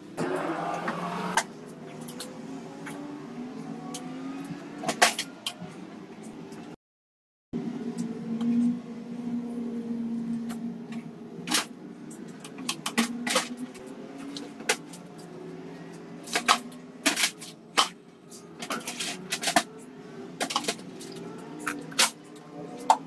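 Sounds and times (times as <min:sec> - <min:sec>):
low hum: 0:07.6 - 0:22.7.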